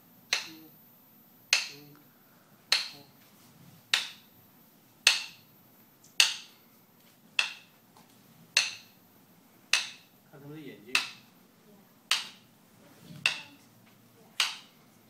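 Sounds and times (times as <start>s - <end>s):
sharp clicks keeping a beat: 12.1s - 12.5s, 14.4s - 14.8s.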